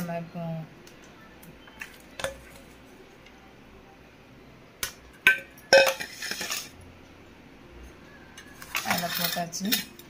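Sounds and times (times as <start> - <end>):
metal bowl clattering: 2.2 - 2.8, 5.2 - 6.8, 8.6 - 10.0
metal bowl knocking: 5.3 - 6.7.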